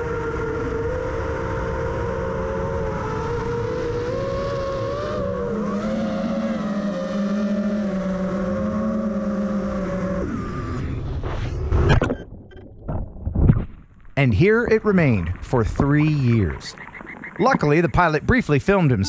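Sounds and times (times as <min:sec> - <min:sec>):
drone propellers whining: 0:00.0 - 0:11.7, 0:14.3 - 0:19.0
low hum: 0:00.0 - 0:19.0.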